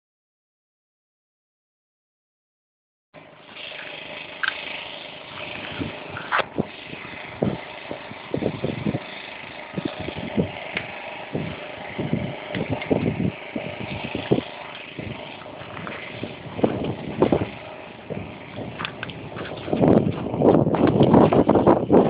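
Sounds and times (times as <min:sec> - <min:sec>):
outdoor background noise: 0:03.2 - 0:22.0
low thumps and knocks: 0:15.6 - 0:22.0.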